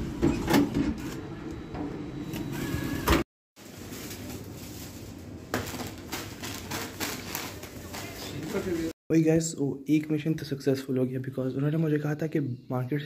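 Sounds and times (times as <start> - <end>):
snack packets crinkling: 3.6 - 8.9.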